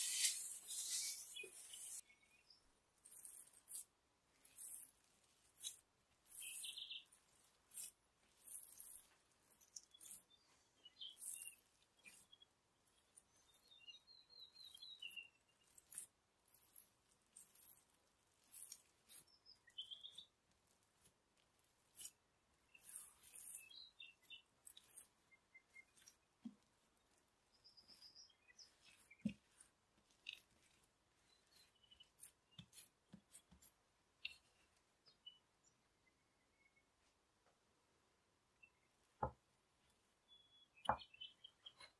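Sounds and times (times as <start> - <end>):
hands patting dough: 15.6 - 34.8
faint high chirps: 27.0 - 33.4, 40.2 - 41.9.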